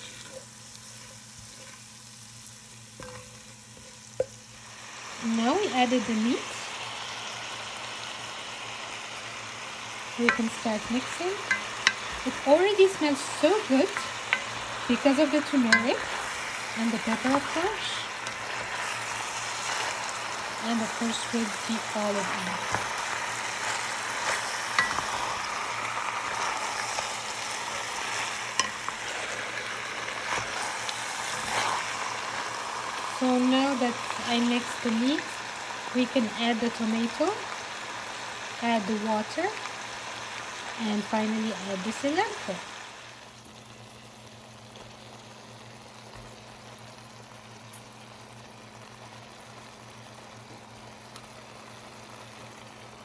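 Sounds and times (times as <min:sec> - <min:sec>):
spatula stirring: 0:00.0 - 0:04.7, 0:10.2 - 0:13.1, 0:13.8 - 0:33.1
low constant hum: 0:00.0 - 0:53.0
meat sizzling in a pot: 0:00.0 - 0:53.0.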